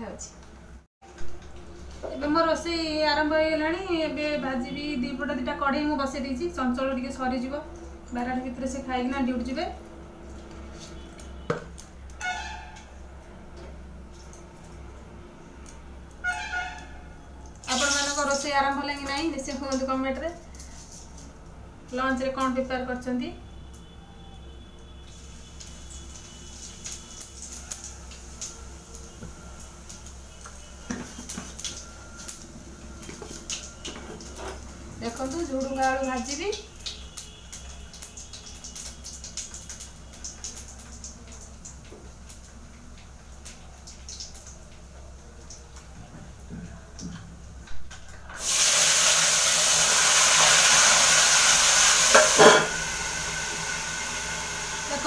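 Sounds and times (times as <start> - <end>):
loud sizzle of frying: 0.6 - 55.0
kitchen utensils clinking: 52.1 - 52.8.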